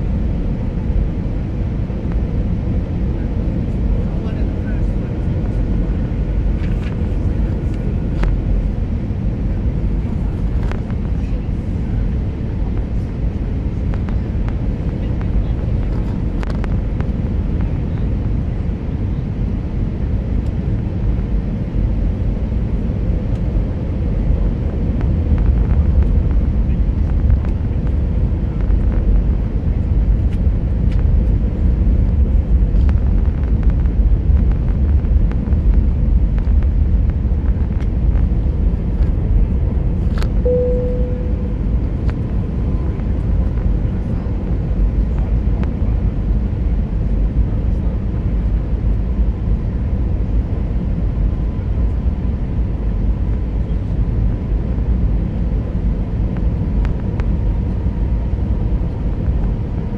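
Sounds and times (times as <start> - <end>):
airplane cabin drone: 0.0 - 59.9
faint steady whine: 24.2 - 59.9
brief single tone: 40.4 - 41.9.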